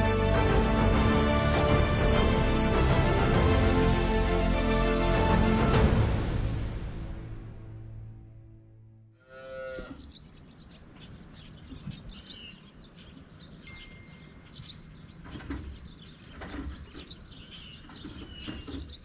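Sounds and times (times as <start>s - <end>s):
music: 0.0s - 9.2s
cow mooing: 9.2s - 10.2s
birds chirping: 9.5s - 19.0s.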